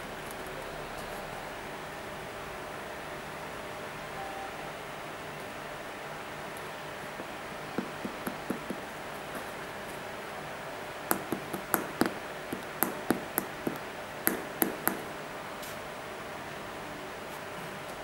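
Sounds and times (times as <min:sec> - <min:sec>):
fingertip tapping on sneaker sole: 0:07.8 - 0:09.5, 0:11.1 - 0:15.1.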